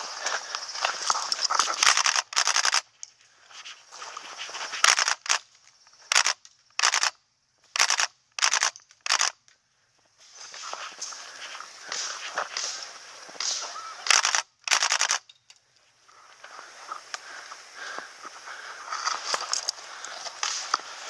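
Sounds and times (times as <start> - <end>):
airsoft gun full-auto bursts: 1.7 - 2.9, 4.8 - 5.4, 6.1 - 7.2, 7.8 - 9.4, 13.4 - 15.2.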